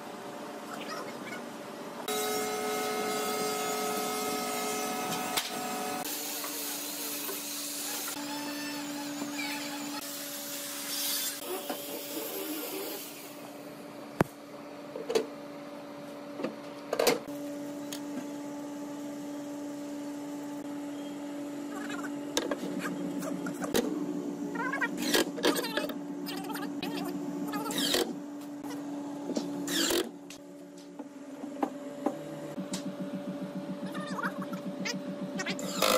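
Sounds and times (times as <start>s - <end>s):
power tool whining on wood: 35.6s - 35.9s.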